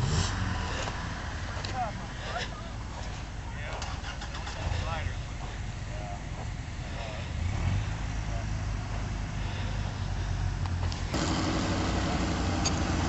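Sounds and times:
off-road vehicle engines rumbling: 0.0s - 13.0s
faint voices: 1.5s - 10.0s.

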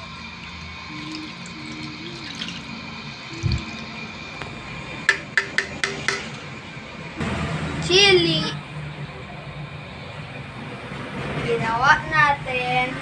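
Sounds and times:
liquid pouring and dripping into pan: 0.4s - 2.8s
sharp metallic taps on bowl: 5.1s - 6.3s.

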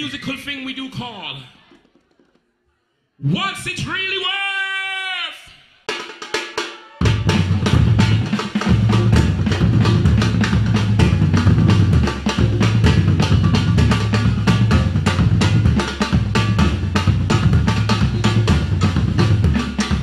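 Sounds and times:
hand drums beating fast rhythm: 5.9s - 20.0s
deep repeating bass line: 7.2s - 20.0s.

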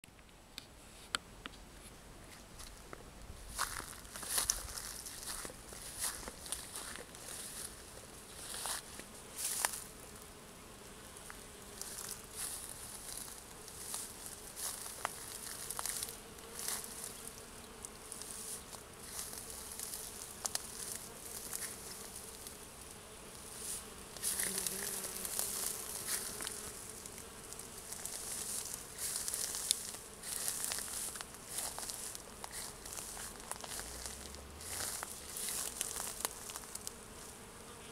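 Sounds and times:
bees buzzing: 3.8s - 37.9s
high scratchy rustles: 23.4s - 37.3s.

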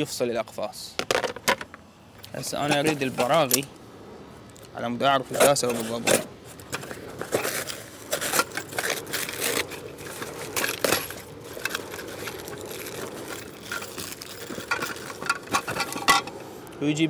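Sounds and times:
metal screws rattling: 6.7s - 16.4s.

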